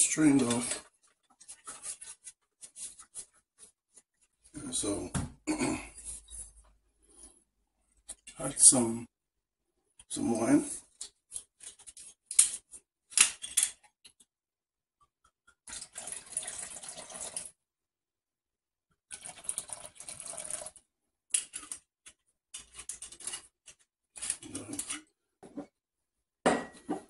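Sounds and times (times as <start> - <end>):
wine pouring and splashing: 15.6 - 17.6, 19.1 - 20.8.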